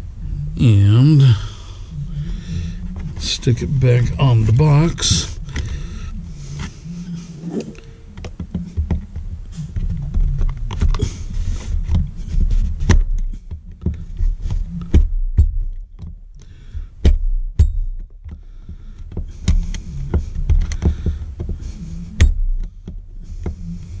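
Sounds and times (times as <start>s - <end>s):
low handling rumble: 0.0s - 24.0s.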